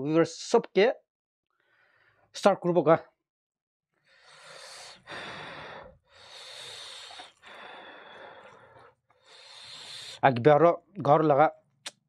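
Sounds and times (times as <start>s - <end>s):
person breathing heavily: 4.0s - 10.2s.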